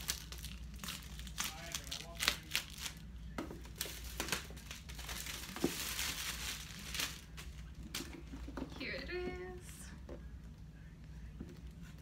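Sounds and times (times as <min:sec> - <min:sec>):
plastic wrap crinkling: 0:00.0 - 0:08.0.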